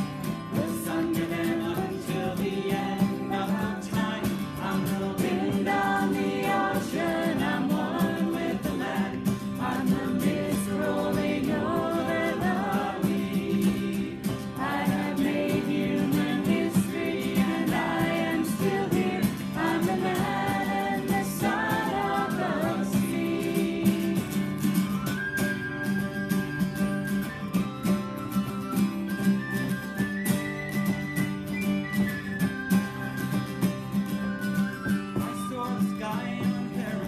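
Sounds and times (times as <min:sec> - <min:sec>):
acoustic guitar strumming: 0:00.0 - 0:37.0
people singing together: 0:00.2 - 0:24.8.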